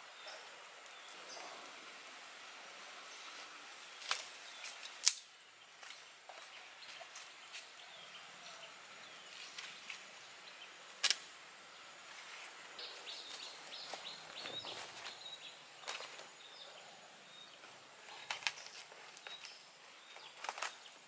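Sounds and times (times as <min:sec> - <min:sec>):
campfire crackling and popping: 0:03.7 - 0:06.0.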